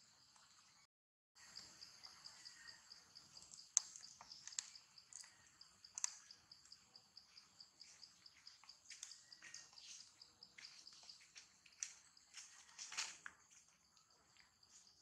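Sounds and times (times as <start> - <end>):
insect chirping: 1.4 - 15.0
soft sharp clicks: 5.9 - 6.2.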